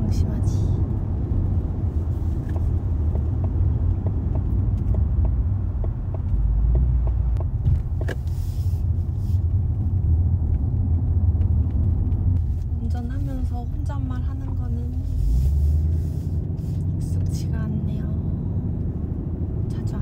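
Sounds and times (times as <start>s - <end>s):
car engine and road rumble: 0.0s - 20.0s.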